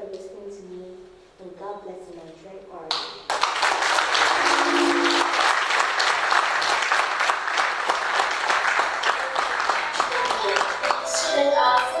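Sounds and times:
audience applauding: 3.3s - 12.0s
steady low tone: 4.3s - 5.6s.

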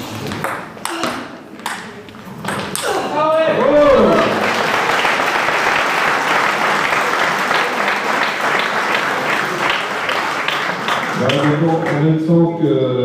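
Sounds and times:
crowd applauding: 3.7s - 12.3s.

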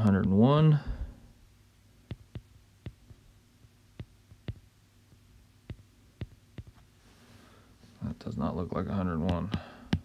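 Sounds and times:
faint low hum: 0.0s - 10.0s
stylus tapping on glass screen: 2.1s - 3.2s, 3.9s - 6.8s.

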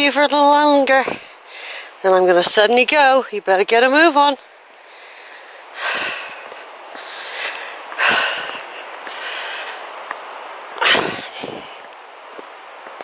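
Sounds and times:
heavy breathing: 4.4s - 10.0s.

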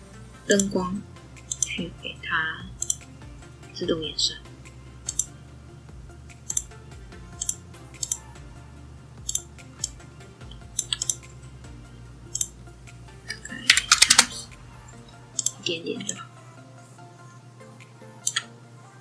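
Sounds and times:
soft background music: 0.0s - 19.0s
computer mouse clicking: 1.5s - 1.7s, 2.8s - 3.1s, 5.1s - 5.3s, 6.5s - 6.7s, 7.4s - 8.2s, 9.3s - 10.0s, 10.8s - 11.2s, 12.3s - 12.5s, 15.4s - 16.2s, 18.2s - 18.5s.

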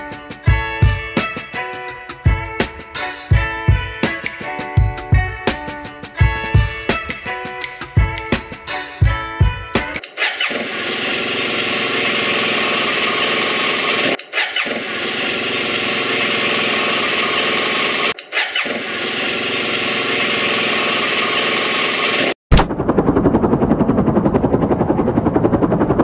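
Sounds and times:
motor scooter engine starting and running: 10.0s - 25.9s.

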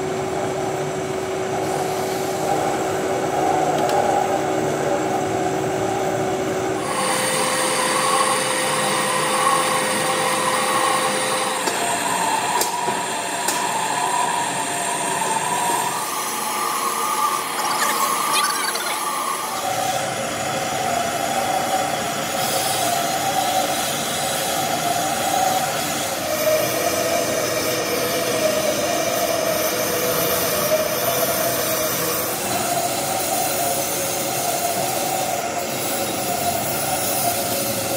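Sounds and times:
lathe cutting metal: 6.8s - 11.6s, 14.8s - 20.8s
shrill machine whine: 13.8s - 20.8s.

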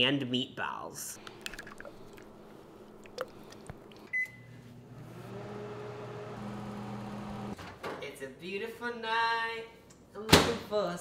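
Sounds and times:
microwave oven humming: 3.8s - 7.6s
microwave keypad beep: 4.1s - 4.5s.

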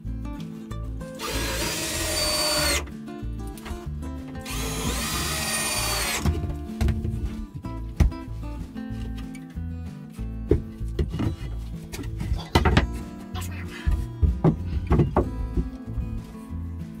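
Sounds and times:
background music: 0.0s - 17.0s
cordless drill driving screws: 1.2s - 2.9s, 4.4s - 6.3s.

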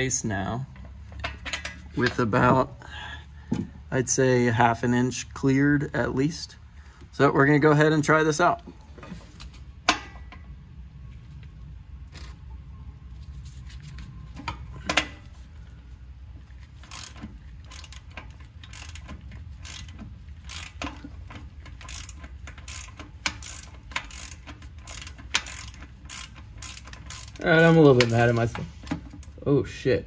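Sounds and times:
ratchet wrench clicking: 16.8s - 28.6s.

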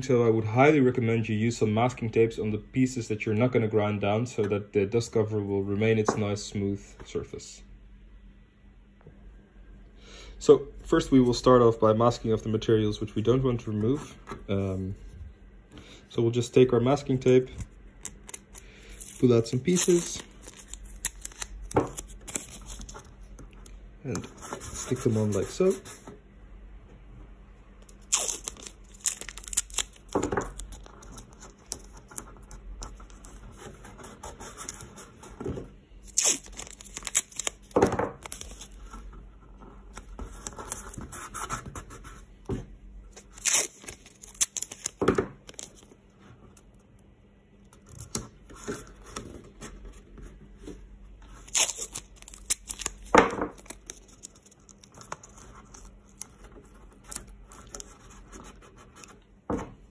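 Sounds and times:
handling tape on plastic cover: 17.5s - 23.6s, 27.8s - 35.2s, 36.0s - 39.1s, 43.1s - 45.9s, 51.3s - 59.2s
masking tape ripping: 28.0s - 30.8s, 36.0s - 38.7s, 43.3s - 45.7s, 51.4s - 54.8s.

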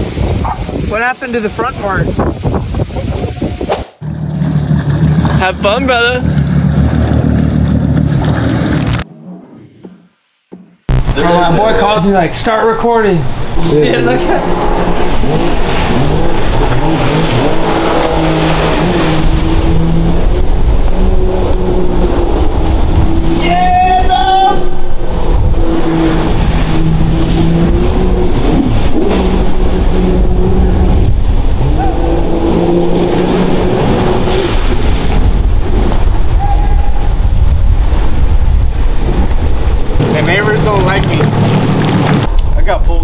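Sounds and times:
wind rumble on microphone: 0.0s - 5.7s, 13.4s - 43.0s
jet ski engine running hard: 4.0s - 9.0s, 13.4s - 23.5s, 24.1s - 36.5s, 37.2s - 42.3s.

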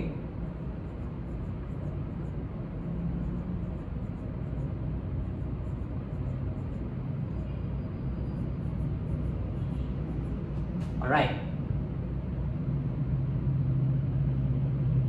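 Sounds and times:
steady low rumble: 0.0s - 15.0s
marker writing on whiteboard: 0.5s - 11.0s.

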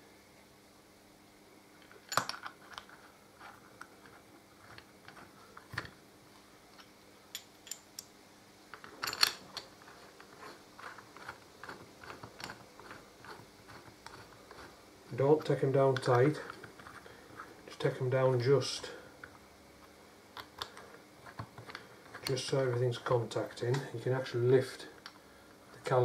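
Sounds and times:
metal bolts clicking and tapping: 6.8s - 8.1s.

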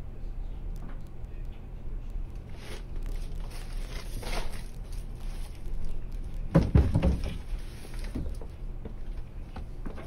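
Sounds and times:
low steady hum: 0.0s - 10.0s
dull thumps: 6.5s - 7.5s.

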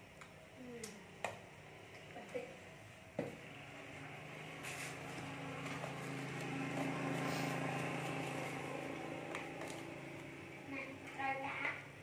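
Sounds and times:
passing motor vehicle engine hum: 3.3s - 10.8s.

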